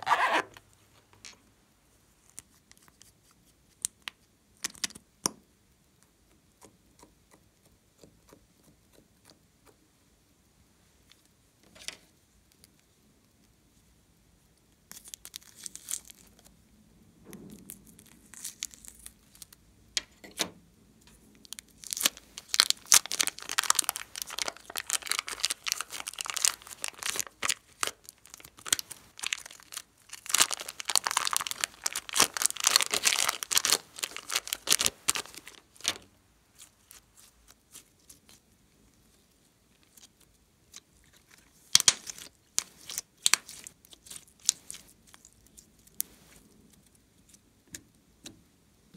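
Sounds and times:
plastic bag crinkling and tearing: 14.9 - 16.5, 17.6 - 19.6, 21.4 - 38.4, 41.1 - 46.4.

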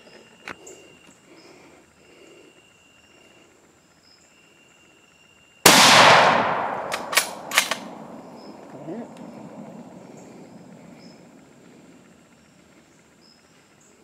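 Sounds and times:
loud rifle shot: 5.6 - 10.8
sharp clicks: 5.7 - 9.6.

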